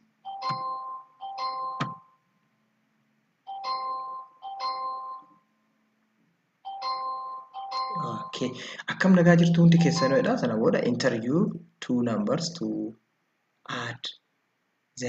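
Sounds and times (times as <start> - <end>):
electronic two-note chime: 9.2 - 10.9.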